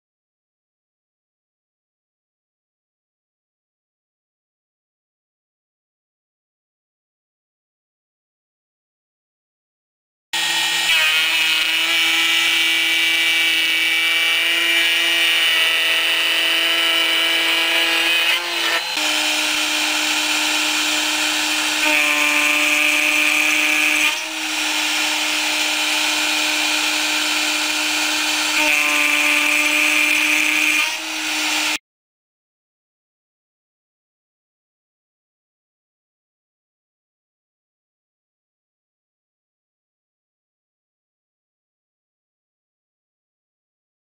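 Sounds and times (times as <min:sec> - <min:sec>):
high-pitched metal cutting tone: 0:10.4 - 0:31.8
router motor whine: 0:10.4 - 0:31.8.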